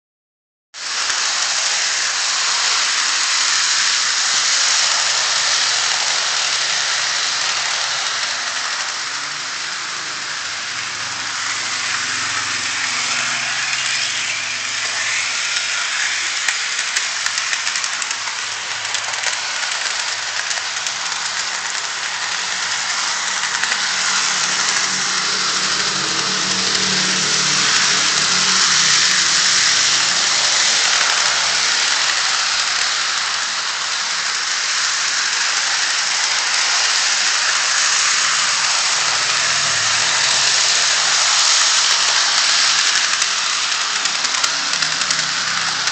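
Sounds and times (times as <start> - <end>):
model train motor whirring: 0.8 - 45.9
wheels rattling over rails: 0.8 - 45.9.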